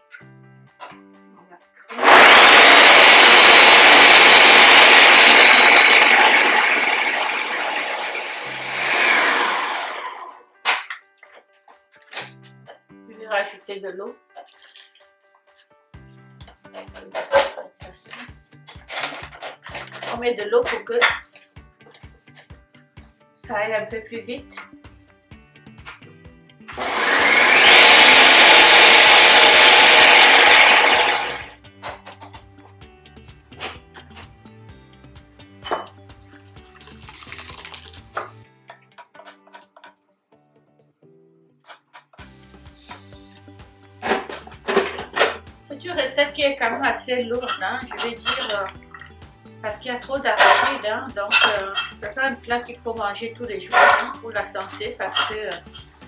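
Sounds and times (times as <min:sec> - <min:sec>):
blender grinding: 0:01.9 - 0:10.4, 0:26.7 - 0:31.6, 0:44.0 - 0:45.4, 0:50.4 - 0:52.0, 0:53.7 - 0:55.9.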